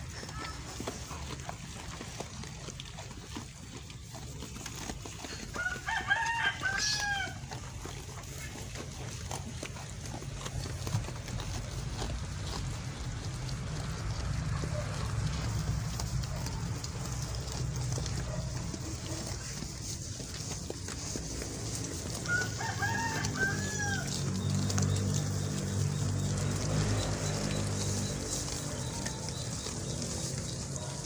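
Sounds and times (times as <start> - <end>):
sheep munching grass: 0.0 - 31.0
rooster crowing: 5.5 - 7.6, 22.1 - 25.4.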